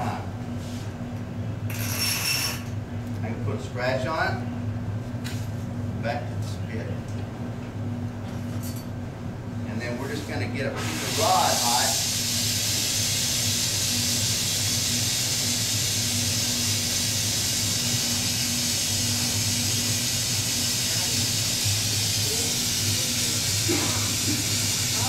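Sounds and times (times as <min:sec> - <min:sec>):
steady low hum: 0:00.0 - 0:25.0
torch flame hissing: 0:10.8 - 0:25.0.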